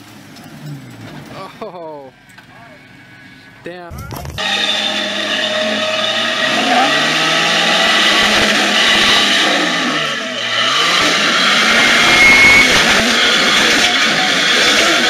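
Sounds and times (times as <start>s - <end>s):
engine revving under load: 4.4s - 15.0s.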